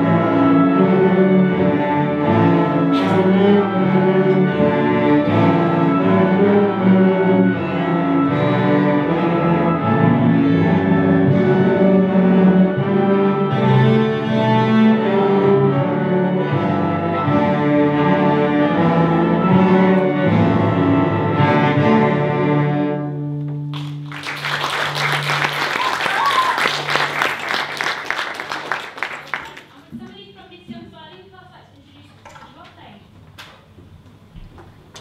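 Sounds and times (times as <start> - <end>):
string orchestra playing: 0.0 - 23.6
audience applause: 23.7 - 29.8.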